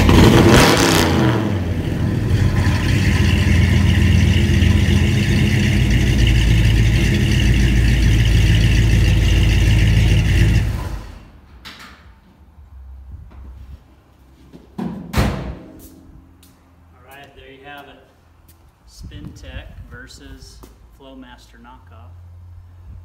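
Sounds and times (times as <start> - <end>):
vee eight engine idling: 1.5 - 11.2.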